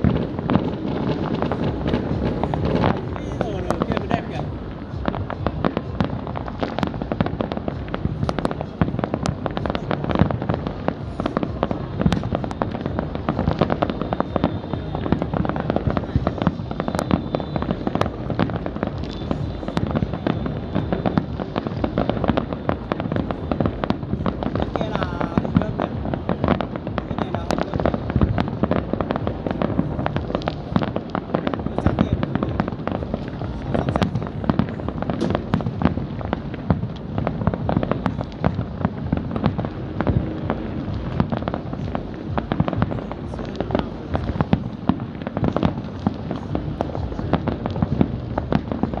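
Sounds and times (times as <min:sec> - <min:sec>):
fireworks bangs and crackles: 0:00.0 - 0:49.0.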